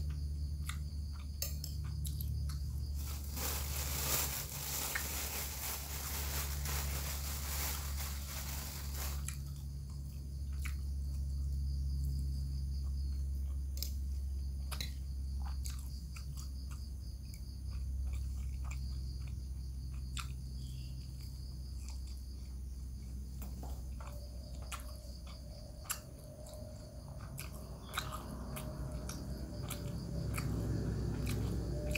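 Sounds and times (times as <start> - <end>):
steady low hum: 0.0 - 31.9
background hiss: 2.9 - 9.6
chewing food close-up: 9.2 - 31.9.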